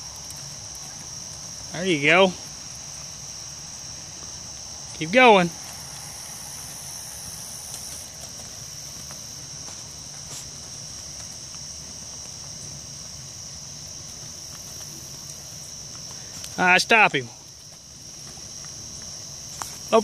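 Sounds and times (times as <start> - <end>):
crickets chirping: 0.0 - 20.0.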